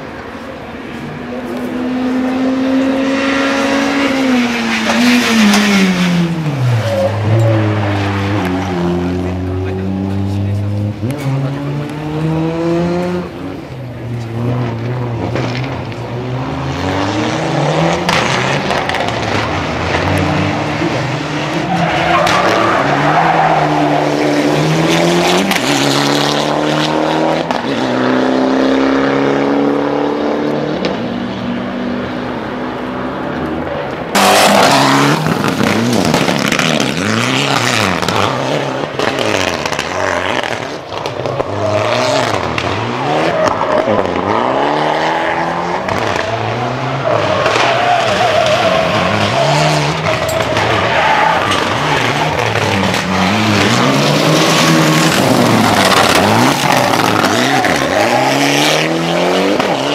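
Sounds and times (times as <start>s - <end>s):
rally car engines revving: 0.0s - 59.9s
tyre squeal and skidding: 4.0s - 9.2s, 18.2s - 25.9s, 34.1s - 59.9s.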